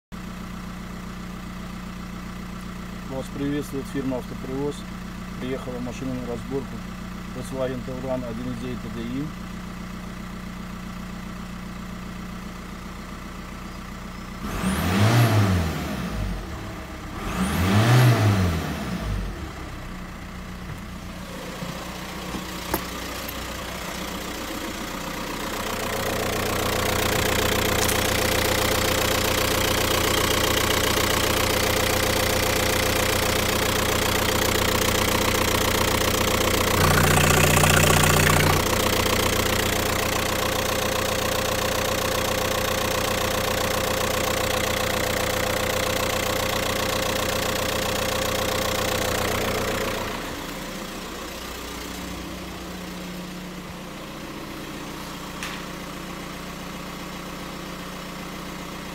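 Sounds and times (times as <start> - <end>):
diesel engine idling and revving: 0.2 - 58.9.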